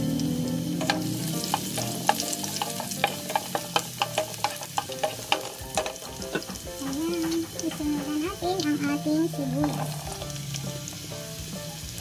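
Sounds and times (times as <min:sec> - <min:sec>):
garlic sizzling in oil: 0:00.0 - 0:12.0
utensil clicking and scraping pan: 0:00.8 - 0:08.7, 0:09.6 - 0:10.4.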